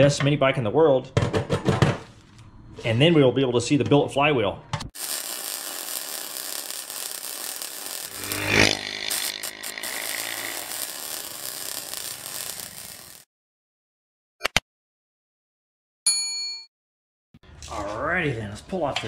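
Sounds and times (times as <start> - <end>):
drone propellers buzzing: 5.7 - 13.2.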